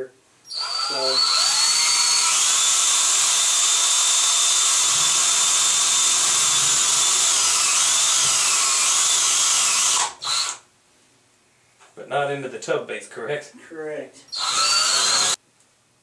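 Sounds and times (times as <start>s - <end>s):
electric drill whining: 0.5s - 10.6s, 14.3s - 15.4s.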